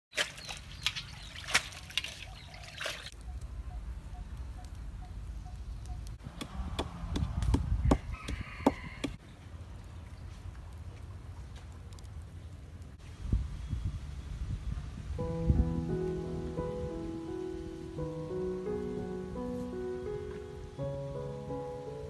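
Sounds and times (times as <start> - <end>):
water splashing and dripping: 0.1 - 3.3.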